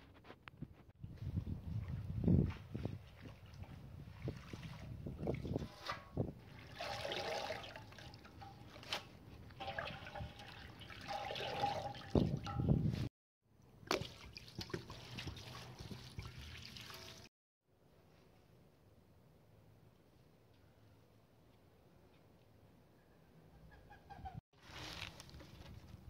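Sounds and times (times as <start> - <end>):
water splashing in metal basin: 3.1 - 12.8, 13.7 - 17.3
water poured from jug: 3.6 - 8.9, 9.6 - 12.7, 13.9 - 17.3
leaves rustling: 24.6 - 25.8.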